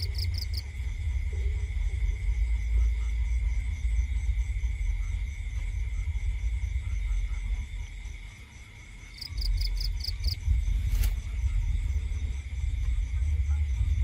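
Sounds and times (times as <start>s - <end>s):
quick insect chirps: 0.0s - 0.7s, 9.0s - 12.0s
low rumble: 0.0s - 8.3s, 9.2s - 14.0s
crickets trilling: 0.0s - 14.0s.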